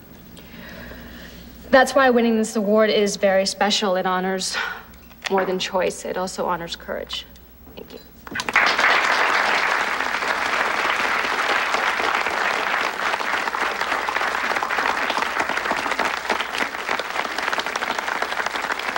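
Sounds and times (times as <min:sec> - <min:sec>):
audience applauding: 0:08.3 - 0:18.9.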